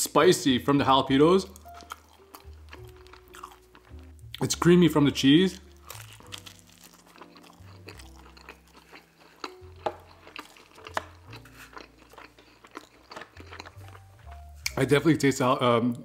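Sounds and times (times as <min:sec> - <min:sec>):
soft background music: 0:00.0 - 0:16.0
mouth chewing food: 0:01.4 - 0:04.4, 0:05.5 - 0:14.8.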